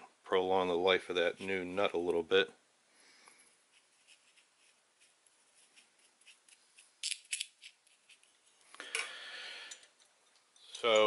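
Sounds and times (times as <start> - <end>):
brush scraping grease on screw: 3.6 - 8.6.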